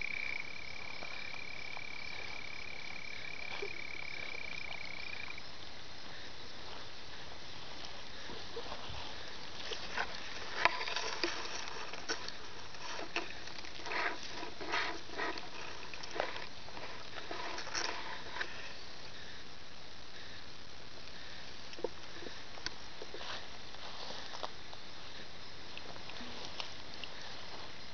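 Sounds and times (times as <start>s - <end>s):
steady hiss: 0.0s - 27.9s
hands rustling through wet grass: 5.5s - 18.7s, 21.1s - 27.9s.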